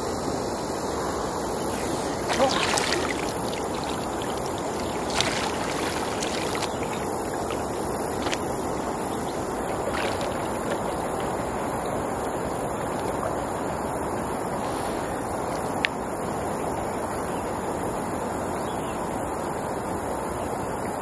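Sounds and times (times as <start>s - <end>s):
river water rushing: 1.4s - 11.8s
splashes of wading: 1.5s - 13.4s.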